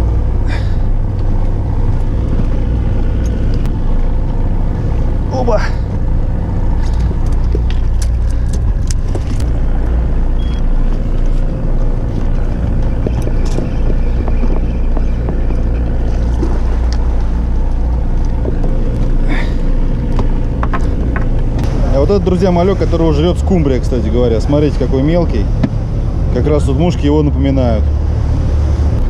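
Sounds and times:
boat engine humming: 0.0s - 29.0s
tackle clicks and knocks: 20.1s - 21.6s.

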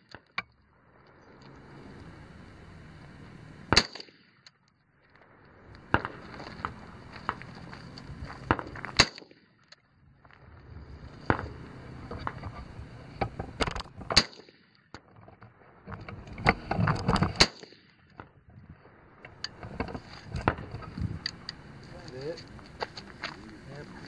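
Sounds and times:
rifle gunshots: 3.7s - 4.3s, 5.9s - 6.3s, 8.5s - 9.4s.

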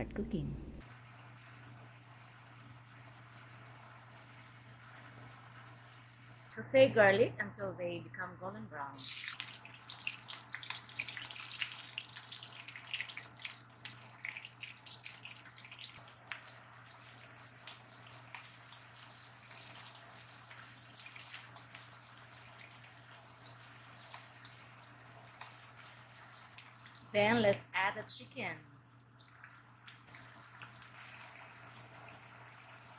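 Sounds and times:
onion sizzling in hot oil: 8.9s - 32.9s.

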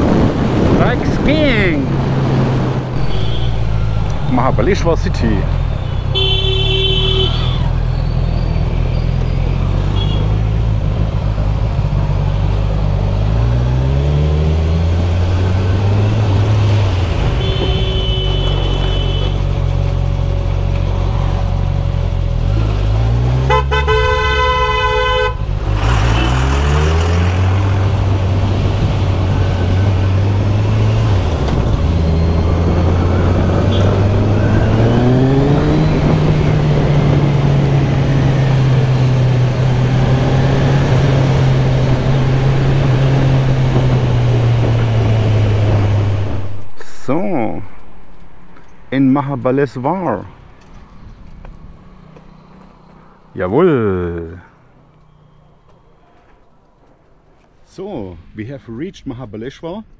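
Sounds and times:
vehicle horns honking: 3.0s - 4.4s, 5.6s - 7.8s, 9.9s - 10.4s, 17.2s - 19.5s, 23.4s - 26.5s, 33.6s - 34.2s.

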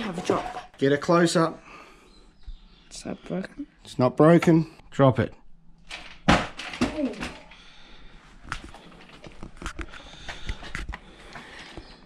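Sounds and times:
boxed toy car hitting ground: 5.9s - 7.4s.

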